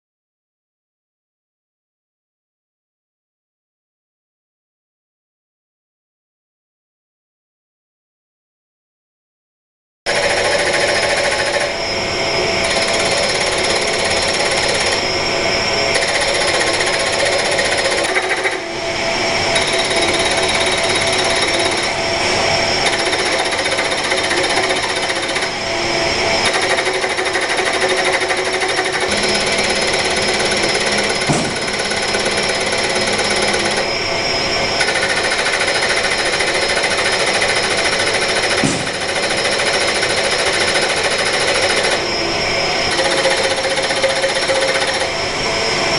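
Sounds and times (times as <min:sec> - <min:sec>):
steady motor whine: 0:10.1 - 0:45.9
servo motors rattling: 0:26.4 - 0:33.9.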